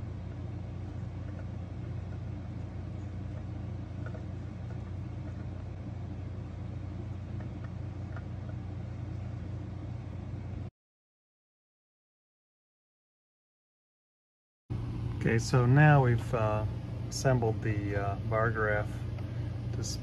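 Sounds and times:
low background hum: 0.0s - 10.7s, 14.7s - 20.0s.

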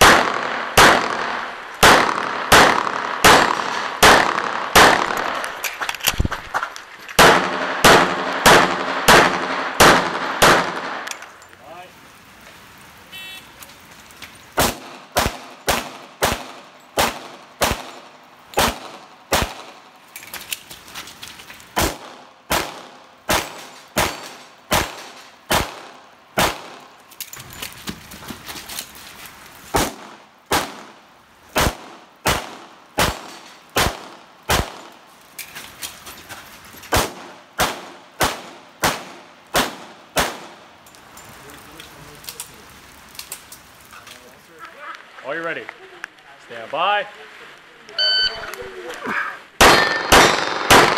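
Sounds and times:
pistol gunshots: 0.0s - 5.6s, 7.2s - 11.2s, 14.6s - 19.8s, 21.8s - 26.9s, 29.7s - 35.0s, 36.9s - 40.6s, 49.6s - 50.9s.

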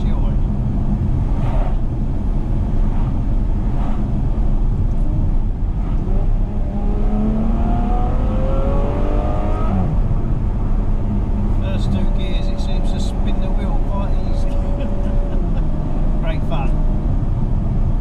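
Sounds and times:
car engine revving from cabin: 2.8s - 10.1s.

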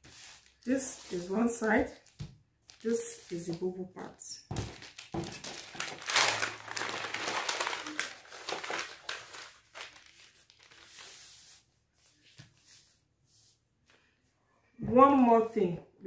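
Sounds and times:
paper rustling and crinkling: 0.0s - 3.8s, 4.5s - 13.0s.

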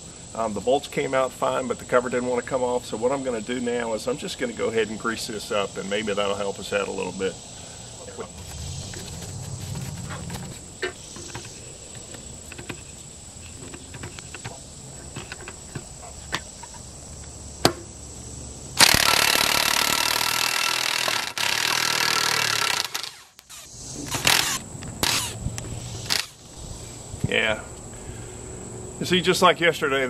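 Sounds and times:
cordless power tool running: 18.8s - 25.4s, 26.1s - 26.3s.

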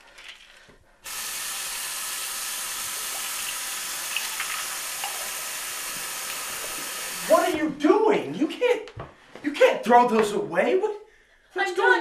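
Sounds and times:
water running from tap: 1.0s - 7.6s.

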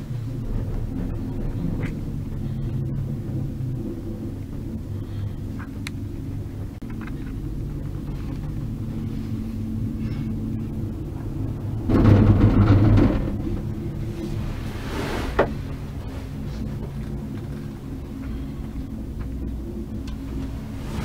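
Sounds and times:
gondola cabin rumble and hum: 0.0s - 21.0s
cabin rattling over rollers: 11.4s - 14.5s.

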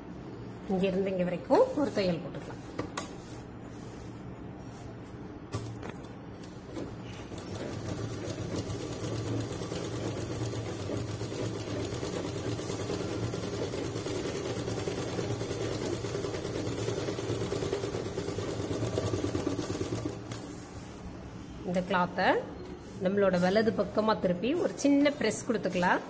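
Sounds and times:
sewing machine stitching: 6.7s - 20.4s.

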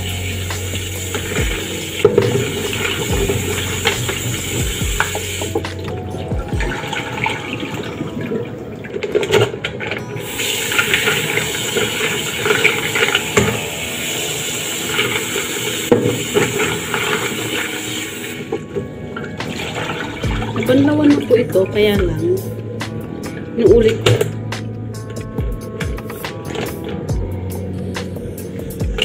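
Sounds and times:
tap water splashing into sink: 0.5s - 8.4s, 9.0s - 13.6s, 14.9s - 21.4s, 23.7s - 24.6s.

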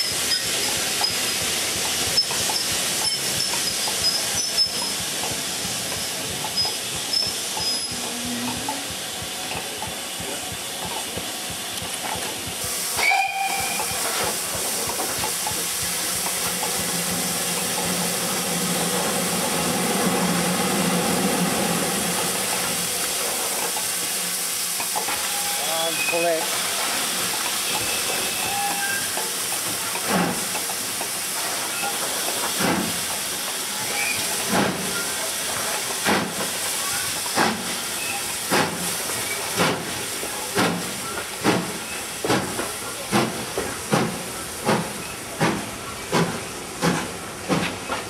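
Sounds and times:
steam hissing: 0.0s - 48.0s.

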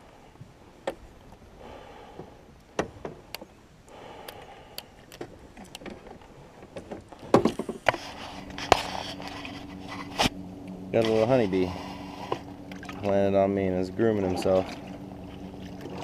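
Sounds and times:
low steady hum: 0.0s - 16.0s
heavy clunks in metal boat: 2.1s - 3.6s, 5.2s - 8.0s
fishing gear clicking and knocking: 4.2s - 9.4s.

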